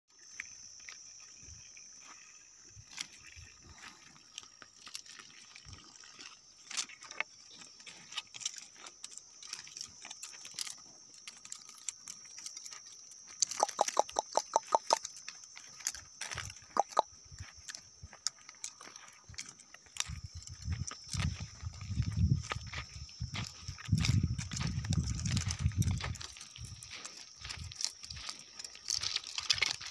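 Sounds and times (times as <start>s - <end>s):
cows cropping grass: 0.2s - 29.9s
rapid sharp ticks: 13.4s - 15.0s, 16.7s - 17.1s.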